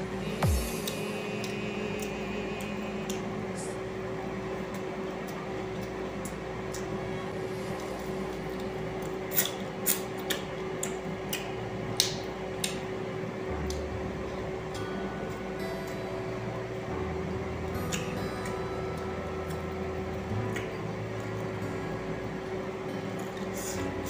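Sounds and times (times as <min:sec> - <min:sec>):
room hum: 0:00.0 - 0:24.0
wet chewing sounds: 0:07.6 - 0:12.9.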